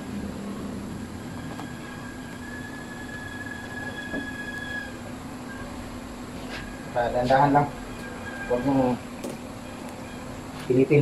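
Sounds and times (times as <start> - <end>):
steady low hum: 0.0 - 11.0
sink rim squealing: 1.1 - 5.8, 7.9 - 9.0.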